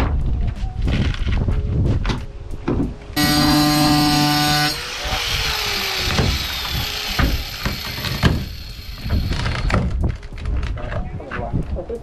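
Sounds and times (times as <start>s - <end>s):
power tool spinning down: 3.2s - 9.7s.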